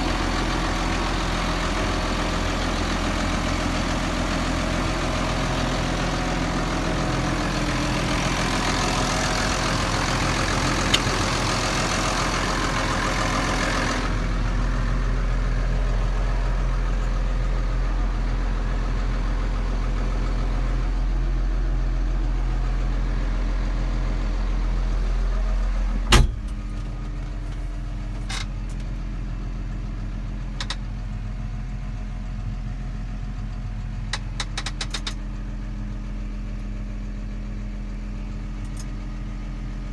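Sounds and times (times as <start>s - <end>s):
diesel tractor engine idling: 0.0s - 39.9s.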